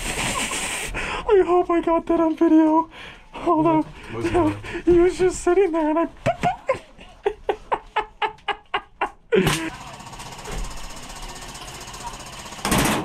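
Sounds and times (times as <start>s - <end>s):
low background noise: 0.9s - 9.4s
man laughing: 6.1s - 10.0s.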